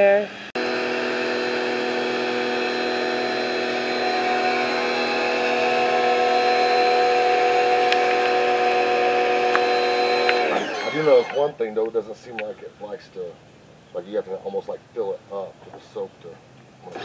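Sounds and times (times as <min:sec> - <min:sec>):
pressure washer motor humming: 0:00.6 - 0:11.6.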